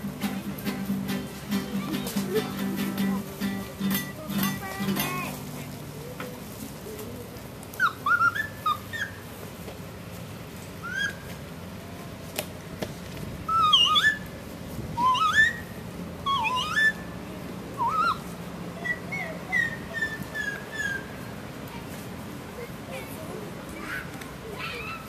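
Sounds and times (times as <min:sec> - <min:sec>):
bird-like whistling: 0:07.8 - 0:09.2, 0:10.8 - 0:11.3, 0:13.5 - 0:14.3, 0:15.0 - 0:17.1, 0:17.8 - 0:21.2.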